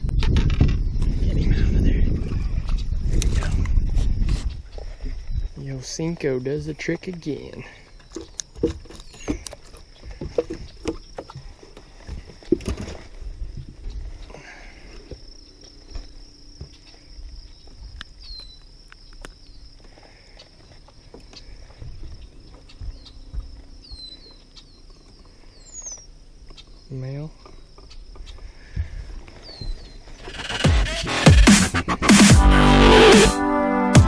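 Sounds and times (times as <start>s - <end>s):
high insect drone: 0.0s - 33.6s
bird chirps: 0.8s - 12.2s, 13.8s - 31.1s
handling knocks and clicks: 6.7s - 14.0s.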